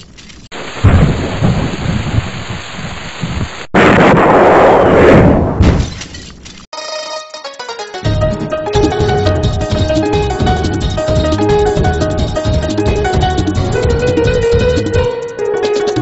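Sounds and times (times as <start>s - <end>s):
bright percussive music: 6.8s - 16.0s.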